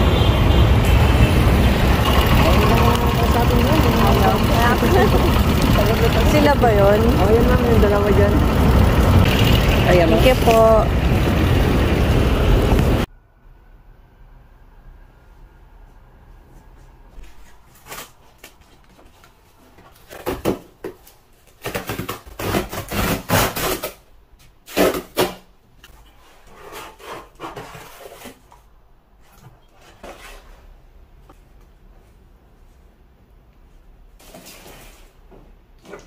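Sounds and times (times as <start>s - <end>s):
rustling of flaps and packaging: 17.1s - 30.8s
cardboard box ripping open: 21.6s - 24.0s.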